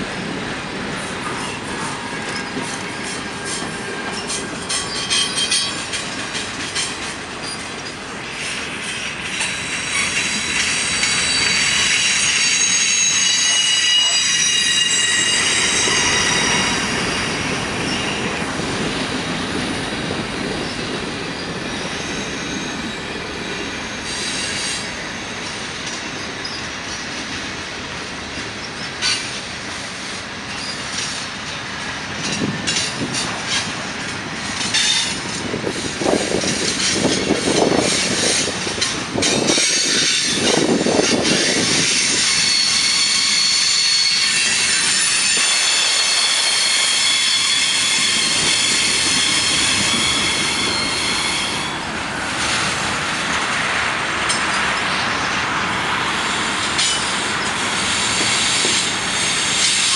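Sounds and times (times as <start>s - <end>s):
freight train rumbling past: 0.0s - 59.9s
wheels clicking over rail joints: 0.3s - 8.1s, 25.4s - 42.4s, 56.6s - 59.9s
wheel squeal: 9.4s - 18.2s, 26.3s - 27.1s, 39.2s - 51.8s.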